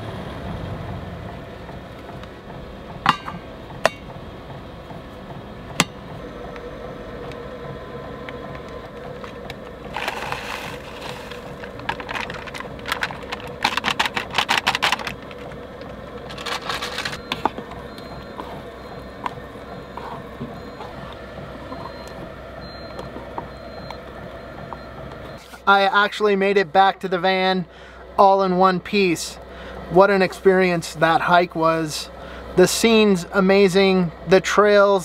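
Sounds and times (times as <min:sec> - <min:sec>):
steady hum: 0:00.0 - 0:35.0
fast run of clicks: 0:08.2 - 0:17.4
foil pouches rustling: 0:09.9 - 0:15.5, 0:16.2 - 0:17.3.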